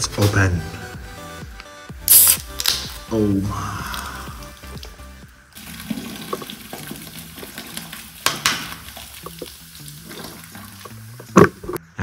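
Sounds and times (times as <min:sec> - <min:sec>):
soda pouring and fizzing: 0:03.5 - 0:11.8.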